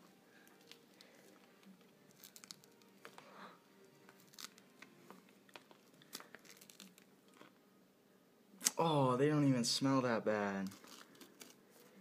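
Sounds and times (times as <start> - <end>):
fruit husk cracking and tearing: 0.4 - 3.2, 4.1 - 4.9, 5.5 - 7.5.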